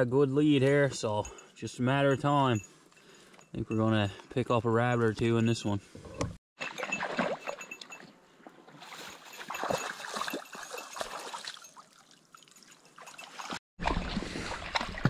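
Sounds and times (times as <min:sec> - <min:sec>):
small splashes and ticks: 0:08.7 - 0:15.0
water trickling: 0:08.8 - 0:13.6.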